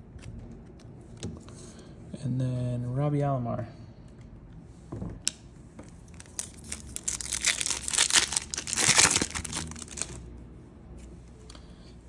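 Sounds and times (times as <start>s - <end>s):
wrapper tearing and crinkling: 6.1s - 10.2s.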